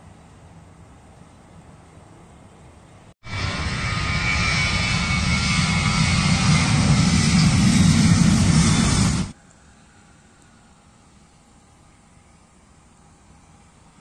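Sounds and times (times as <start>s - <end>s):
jet engines at takeoff power: 3.2s - 9.4s.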